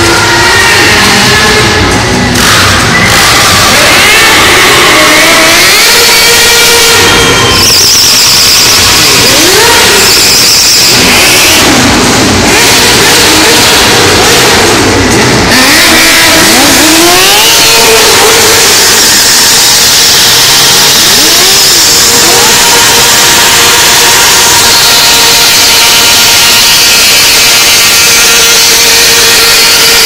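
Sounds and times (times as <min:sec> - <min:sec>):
motorcycle engines revving: 0:00.0 - 0:30.0.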